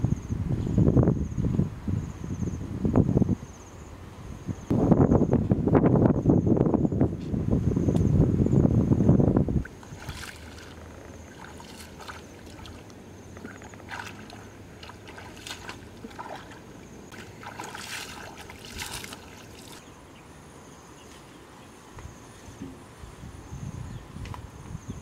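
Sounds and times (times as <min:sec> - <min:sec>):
feet splashing through shallow water: 0:09.6 - 0:19.9.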